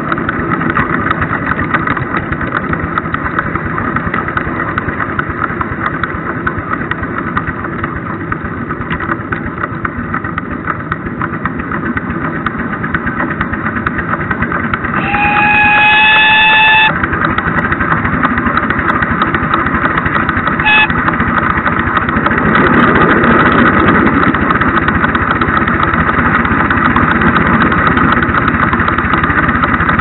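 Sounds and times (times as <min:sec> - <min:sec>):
steam locomotive beat: 0:14.7 - 0:22.4
locomotive whistle: 0:14.9 - 0:17.1, 0:20.5 - 0:21.2.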